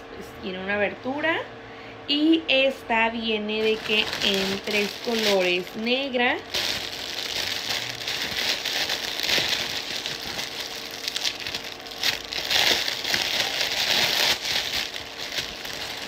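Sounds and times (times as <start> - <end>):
plastic bag crinkling: 3.5 - 16.0.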